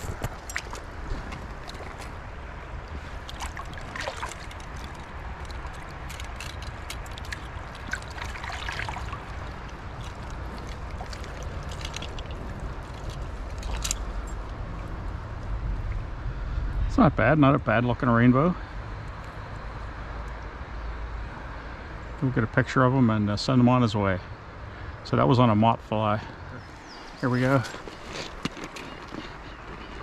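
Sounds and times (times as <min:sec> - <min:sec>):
stream water trickling: 0:00.0 - 0:16.4
small splashes in water: 0:02.8 - 0:14.0.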